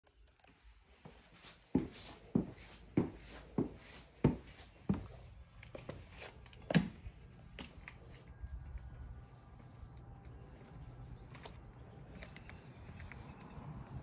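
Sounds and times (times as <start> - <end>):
footsteps on tiled floor: 0.5 - 8.2.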